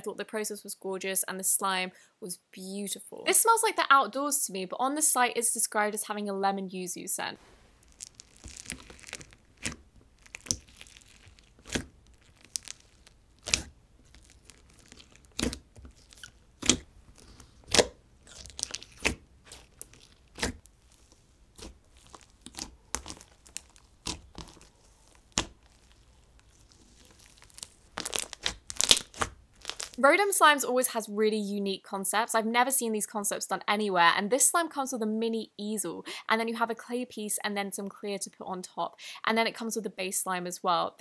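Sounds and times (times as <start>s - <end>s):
wet slime pops and crackles: 7.8s - 30.0s.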